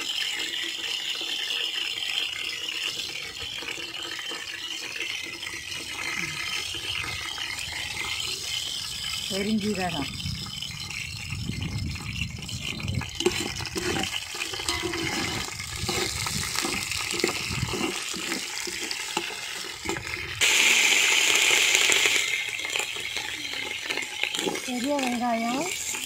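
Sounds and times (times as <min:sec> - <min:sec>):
seeds sizzling in hot oil: 0:00.0 - 0:26.0
ladle scraping and clicking: 0:12.1 - 0:20.4, 0:22.6 - 0:26.0.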